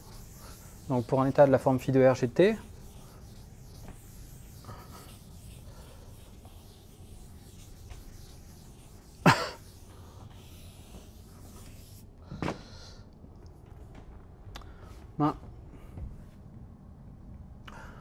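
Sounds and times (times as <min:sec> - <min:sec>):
eraser wiping chalkboard: 0:00.0 - 0:12.1.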